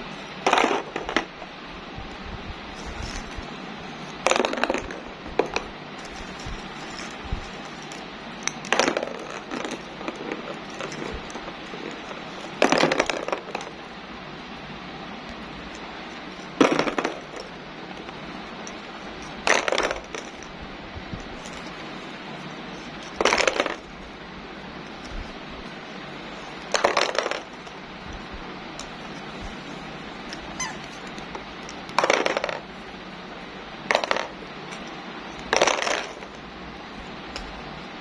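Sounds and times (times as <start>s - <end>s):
plastic balls clattering into tub: 26.7s - 27.5s, 31.9s - 32.6s, 35.5s - 36.4s.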